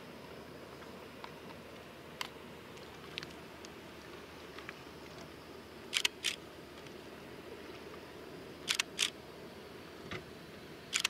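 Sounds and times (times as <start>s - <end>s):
steady low hum: 0.0s - 11.0s
camera shutter clicking: 6.0s - 6.4s, 8.7s - 9.2s.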